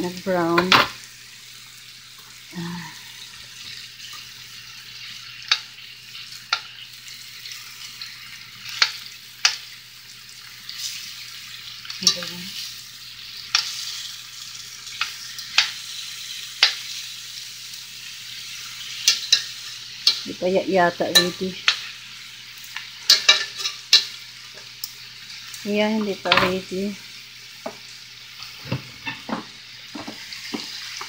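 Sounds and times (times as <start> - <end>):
meat sizzling in a skillet: 0.0 - 31.0
metal tongs clicking on pan: 5.5 - 5.7, 8.6 - 9.7, 11.8 - 12.4, 13.5 - 14.0, 14.9 - 15.8, 16.6 - 16.8, 19.0 - 20.2, 21.1 - 21.9, 22.6 - 24.2.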